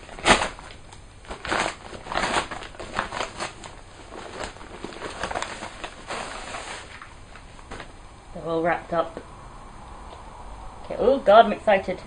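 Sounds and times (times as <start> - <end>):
packaging rustling and tearing: 0.0 - 8.0.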